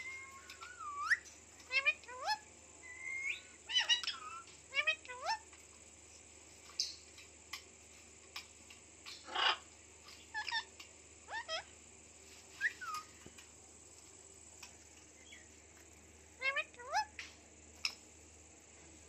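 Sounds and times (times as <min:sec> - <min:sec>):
parakeet chirping: 0:00.0 - 0:05.4, 0:10.2 - 0:10.7, 0:11.3 - 0:11.7, 0:16.4 - 0:17.1
parakeet squawk: 0:01.0 - 0:02.4, 0:03.0 - 0:05.4, 0:09.2 - 0:09.7, 0:10.3 - 0:10.7, 0:11.3 - 0:11.7, 0:16.4 - 0:17.1.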